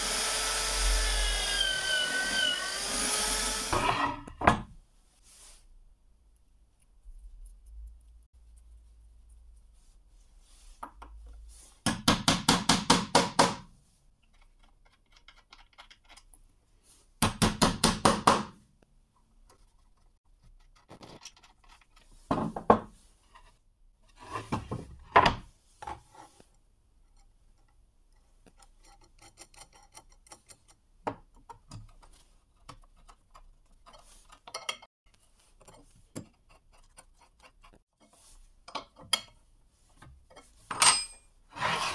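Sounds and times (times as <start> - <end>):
metal bolts and wrench clinking: 40.7 - 41.3.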